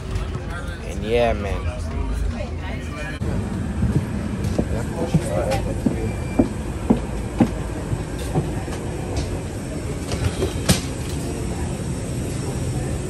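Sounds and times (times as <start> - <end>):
footsteps: 3.2 - 9.4
rolling luggage clatter: 3.2 - 11.6.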